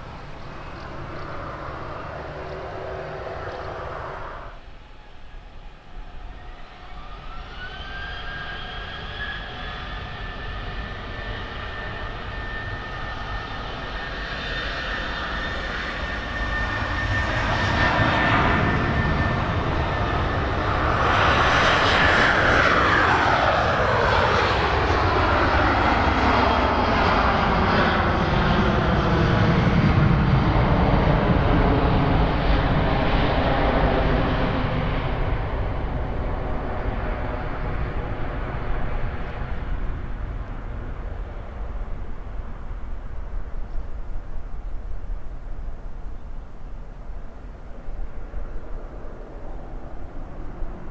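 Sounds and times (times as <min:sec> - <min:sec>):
deep jet rumble: 0:00.0 - 0:50.9
jet engines at takeoff thrust: 0:00.0 - 0:50.9
jet whine falling in pitch: 0:00.1 - 0:28.0.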